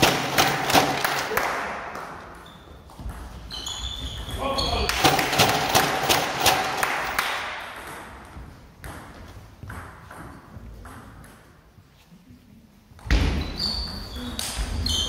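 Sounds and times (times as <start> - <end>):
table tennis ball bouncing: 0.0 - 11.8.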